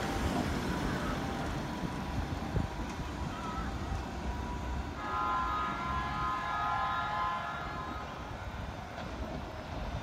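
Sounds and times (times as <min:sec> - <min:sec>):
moving train rumble: 0:00.0 - 0:10.0
train horn blast: 0:04.9 - 0:08.4.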